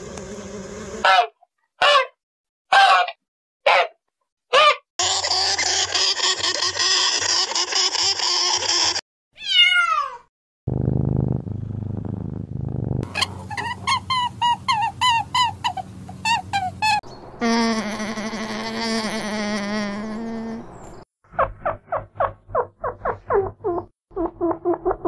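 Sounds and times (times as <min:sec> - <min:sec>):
cat meowing: 0:09.4 - 0:10.3
cat low rumble: 0:10.7 - 0:13.1.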